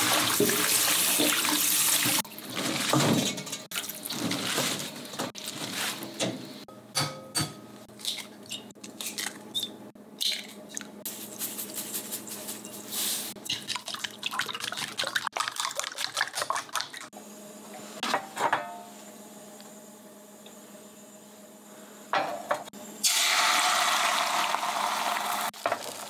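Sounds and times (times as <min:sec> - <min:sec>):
wet leaves rustling in a colander: 0:11.1 - 0:13.3.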